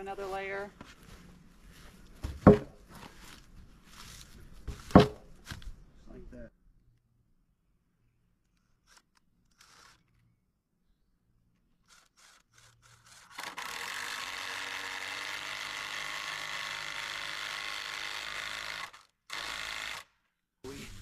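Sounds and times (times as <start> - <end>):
cordless drill driving a screw: 8.8 - 10.2, 11.8 - 20.1.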